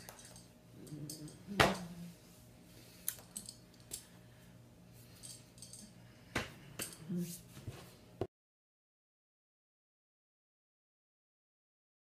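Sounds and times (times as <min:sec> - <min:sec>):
faint low hum: 0:00.0 - 0:08.3.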